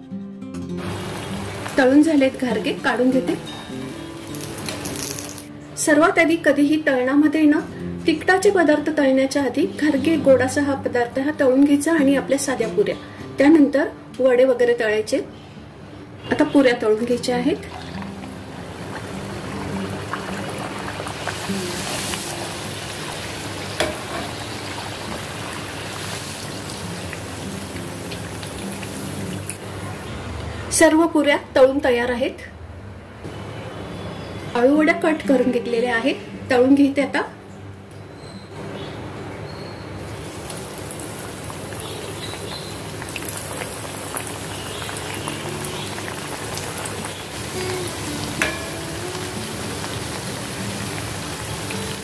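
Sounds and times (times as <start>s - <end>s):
deep-frying sizzle in oil: 0.8s - 3.4s, 17.7s - 30.0s, 40.0s - 52.0s.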